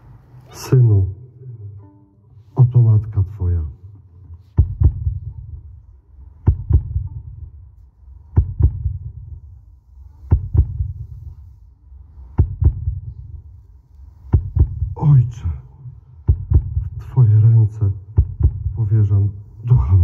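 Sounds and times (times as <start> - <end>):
heartbeat double thumps: 4.4 - 7.7, 8.3 - 9.6, 10.2 - 11.4, 12.3 - 13.6, 14.2 - 15.4, 16.0 - 19.0.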